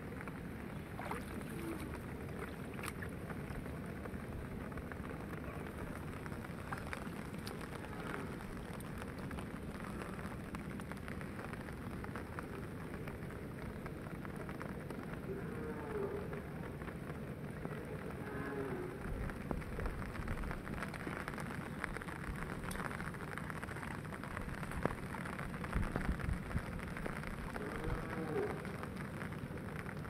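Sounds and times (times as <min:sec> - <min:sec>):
rain falling on pond: 0:00.0 - 0:30.0
water drops ticking: 0:00.9 - 0:03.4.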